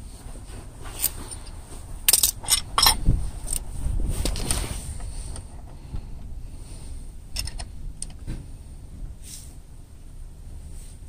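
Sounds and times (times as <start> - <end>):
wrenches clinking on metal: 2.1 - 3.6.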